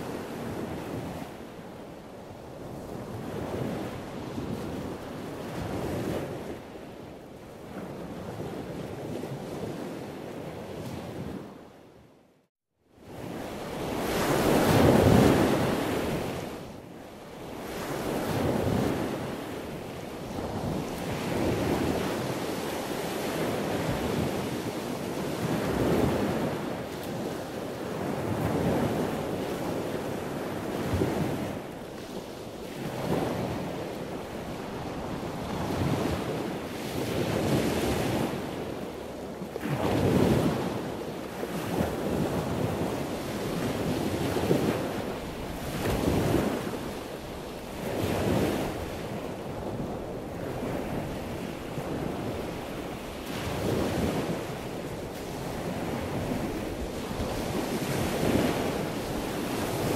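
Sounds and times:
wind buffeting microphone: 13.0 - 59.9.

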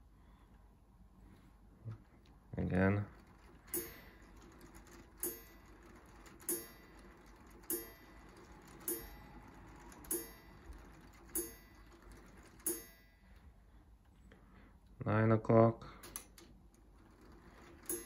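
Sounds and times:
clock striking with ringing tone: 3.1 - 13.4, 17.0 - 18.0.

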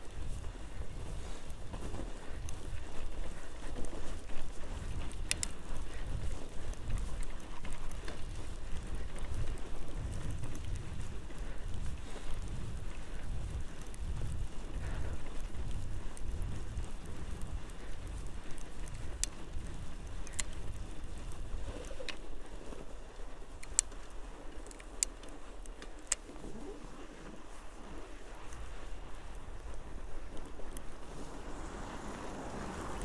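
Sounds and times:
bike rolling over snow: 0.0 - 33.0
wind rumbling on microphone: 0.0 - 33.0
sharp clicks: 20.2 - 20.8, 23.6 - 26.3.

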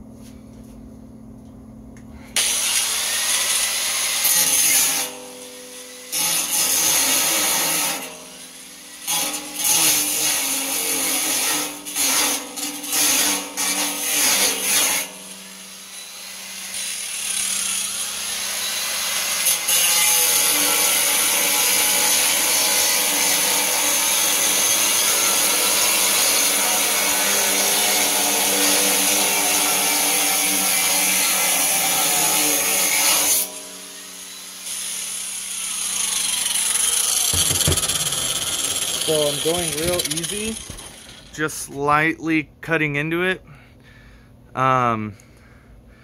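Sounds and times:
angle grinder cutting metal: 2.4 - 41.7
grinder motor hum: 35.6 - 41.5.

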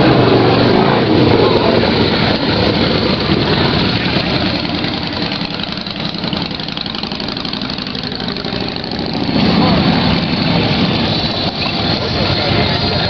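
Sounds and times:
motorcycle engines idling: 0.0 - 13.0.

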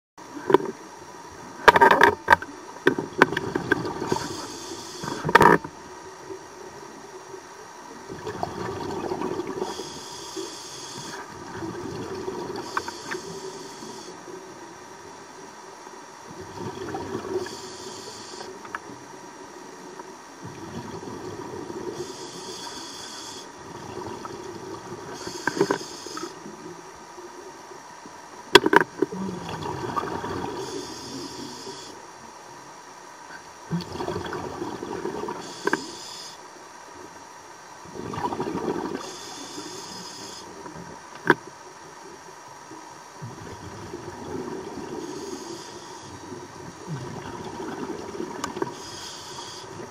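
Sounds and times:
regulator inhale hiss: 3.8 - 5.6, 9.4 - 11.4, 12.3 - 14.5, 17.2 - 18.8, 21.8 - 23.6, 24.9 - 26.6, 30.5 - 32.0, 35.3 - 36.6, 38.9 - 40.8, 44.9 - 47.0, 48.4 - 49.9.

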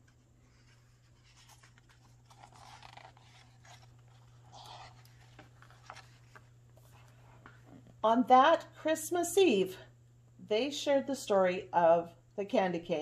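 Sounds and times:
paper page rustling: 0.0 - 7.8
steady low hum: 0.0 - 13.0.

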